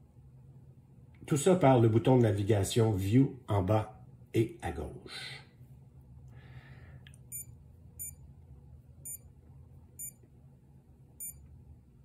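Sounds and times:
watch button beeps: 10.0s - 10.2s, 11.2s - 11.4s.

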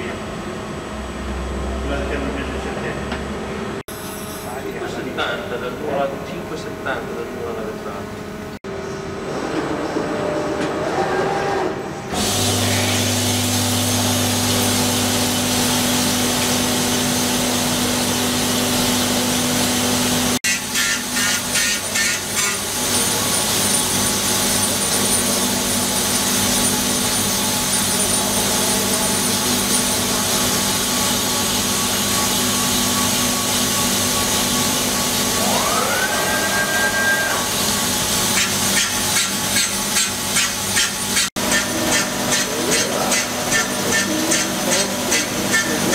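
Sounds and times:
grinder hissing and whining: 10.9s - 45.9s.

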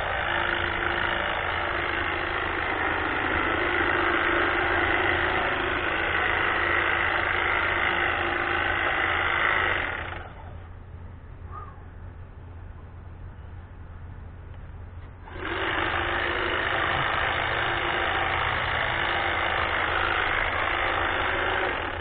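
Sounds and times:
hedge trimmer buzzing: 0.0s - 10.4s, 15.2s - 22.0s.

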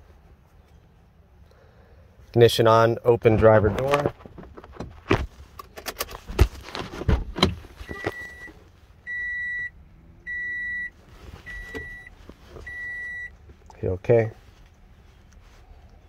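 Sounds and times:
car door clicks and knocks: 3.9s - 7.6s
car warning chime beeping: 7.9s - 13.4s.

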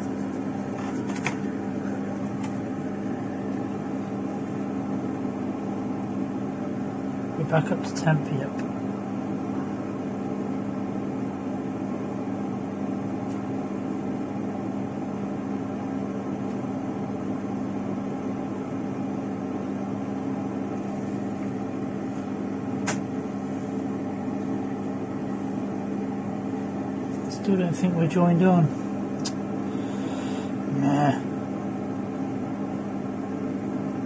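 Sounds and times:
hot air blower whirring hum: 0.0s - 34.0s
sharp click: 22.8s - 23.0s, 29.2s - 29.4s.

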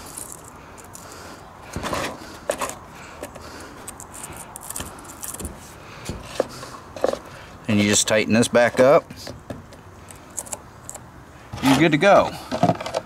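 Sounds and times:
chainsaw chain clicking and scraping: 0.0s - 1.2s, 3.8s - 5.4s.

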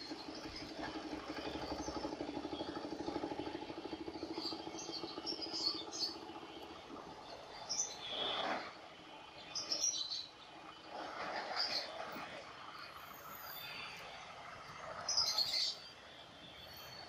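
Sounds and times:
engine idling: 0.0s - 8.3s
small birds chirping: 0.0s - 8.4s.

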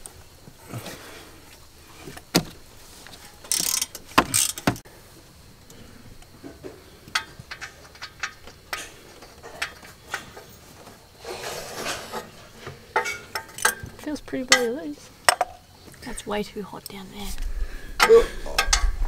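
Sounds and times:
socket ratchet clicking: 3.5s - 4.8s.

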